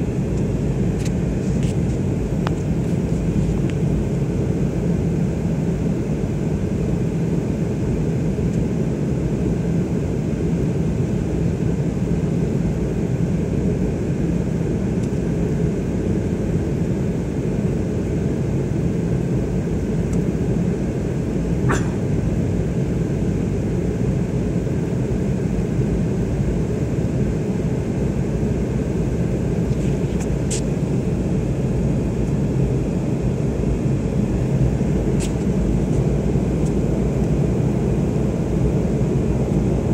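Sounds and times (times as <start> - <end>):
jet cabin rumble: 0.0 - 39.9.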